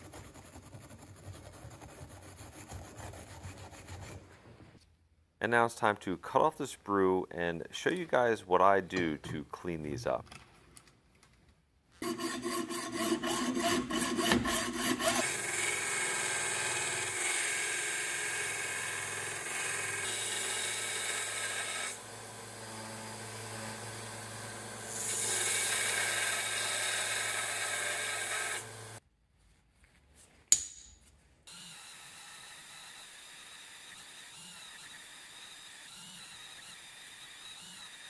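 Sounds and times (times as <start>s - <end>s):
hacksaw cutting brass: 12.0s - 29.0s
sharp click: 30.5s - 31.0s.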